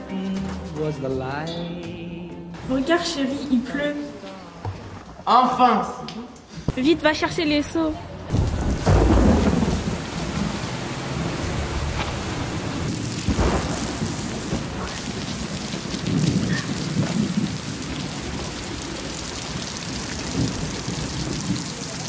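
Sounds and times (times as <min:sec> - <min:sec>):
steady rain falling: 0:08.3 - 0:22.0
thunder rumbling: 0:08.3 - 0:22.0.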